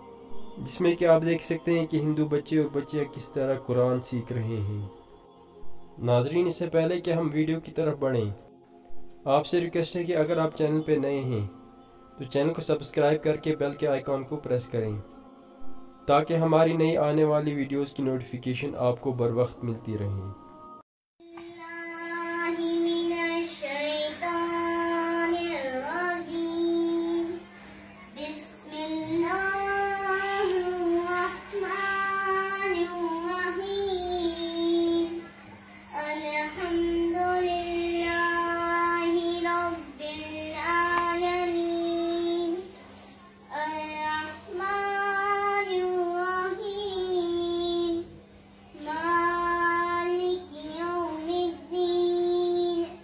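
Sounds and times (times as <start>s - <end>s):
low electrical hum: 0.0s - 53.0s
child chanting melodically: 21.2s - 42.7s, 43.5s - 48.1s, 48.7s - 53.0s.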